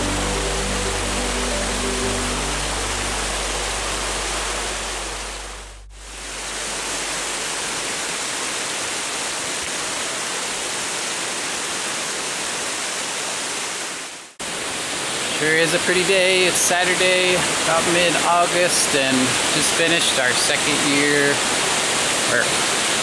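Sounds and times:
background music: 0.0 - 6.0
water rushing over rocks: 0.0 - 23.0.

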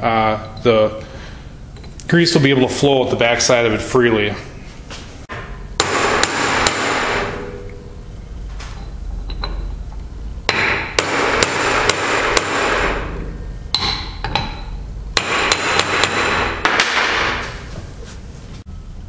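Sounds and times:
hammer striking metal seal driver: 5.3 - 7.7, 10.5 - 17.3.

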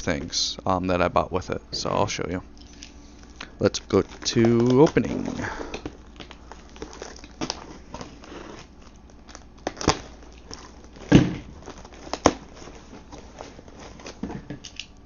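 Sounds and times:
crinkling tape: 2.5 - 15.0
rustling cardboard: 3.8 - 14.5.

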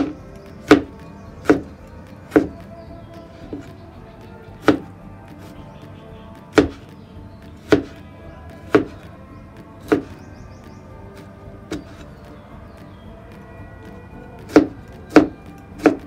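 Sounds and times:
cleaver chopping on plastic board: 0.0 - 3.8, 4.6 - 5.6, 6.5 - 6.9, 7.6 - 9.1, 9.8 - 10.2, 14.4 - 16.0.

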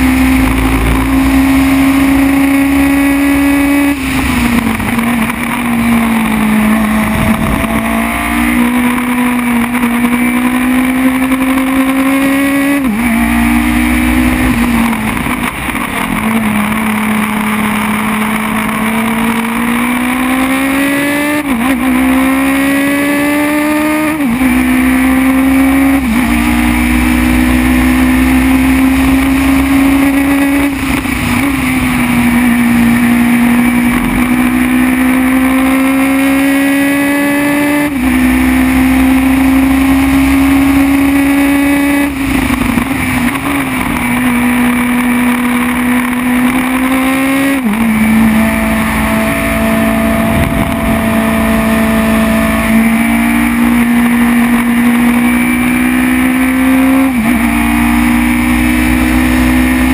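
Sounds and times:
wind rush and rumble: 0.0 - 8.6, 47.8 - 53.0
race car engine at high revs: 0.0 - 59.9.

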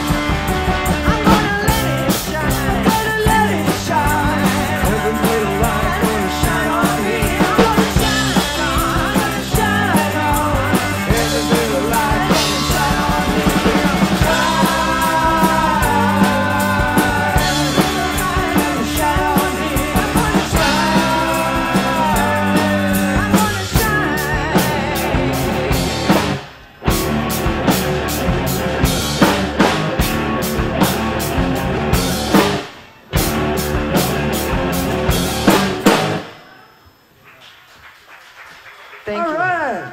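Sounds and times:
electric bass: 0.0 - 36.2
electric guitar: 0.0 - 36.5
live rock band playing: 0.0 - 36.5
drum kit: 0.0 - 36.6
woman singing: 1.2 - 25.5.

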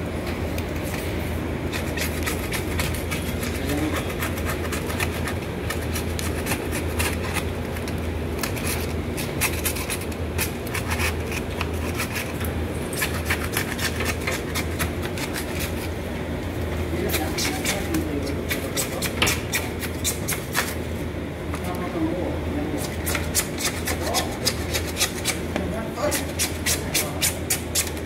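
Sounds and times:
blade scraping a pipe: 8.4 - 15.9.

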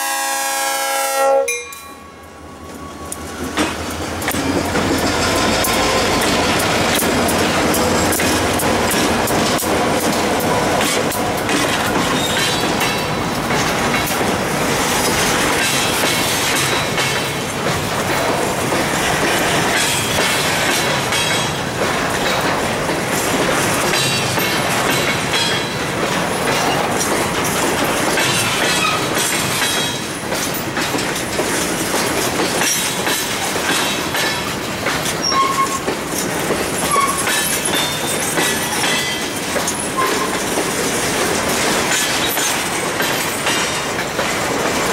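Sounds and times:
train wheel squeals: 1.6 - 8.4, 12.0 - 13.2, 28.3 - 30.7, 32.6 - 40.6, 41.9 - 43.9
train wheels clicking over rail joints: 2.6 - 44.9.

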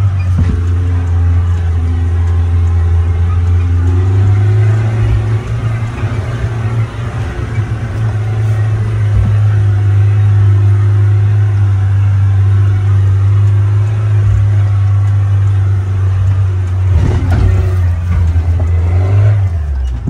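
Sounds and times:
suv engine low drone: 0.0 - 20.0
knocks over rough ground: 0.2 - 0.9, 16.9 - 20.0.

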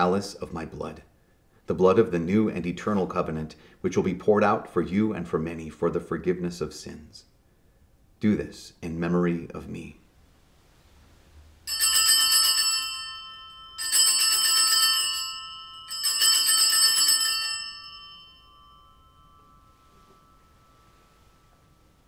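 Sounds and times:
altar bells ringing: 11.6 - 22.0.

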